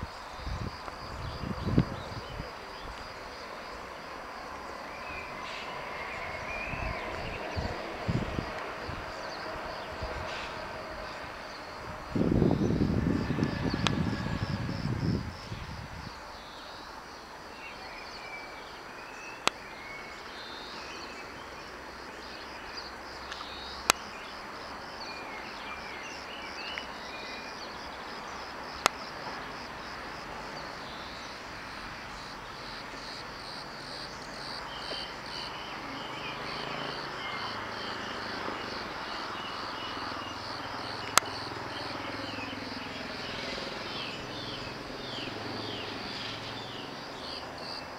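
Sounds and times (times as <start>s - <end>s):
insects chirping: 0.0s - 47.9s
passing train: 2.4s - 17.5s.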